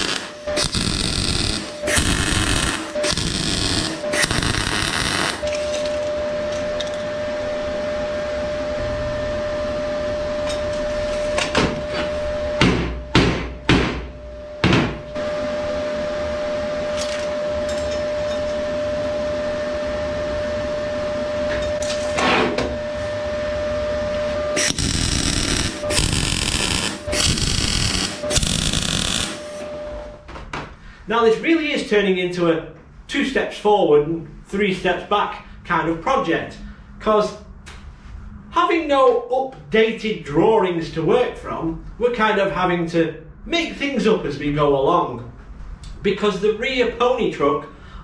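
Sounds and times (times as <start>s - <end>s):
welding arc crackling: 0.0s - 5.9s, 24.6s - 29.6s
steady tone: 0.0s - 10.8s, 22.8s - 30.2s.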